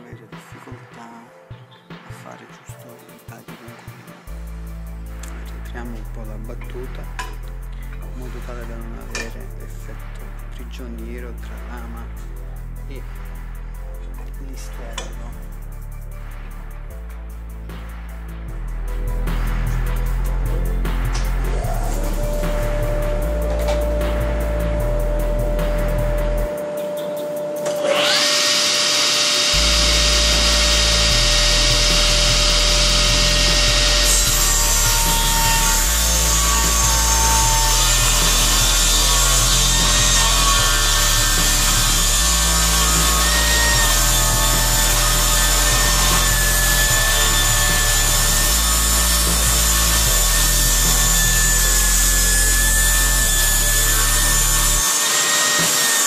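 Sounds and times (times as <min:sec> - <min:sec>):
saw blade whine: 0:21.2 - 0:56.0
rasping hiss of wood cut: 0:27.3 - 0:56.0.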